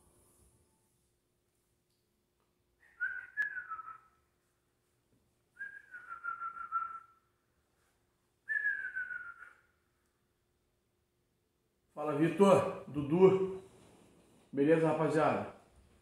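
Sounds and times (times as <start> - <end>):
person whistling: 2.8 - 4.2, 5.6 - 7.3, 8.5 - 9.8.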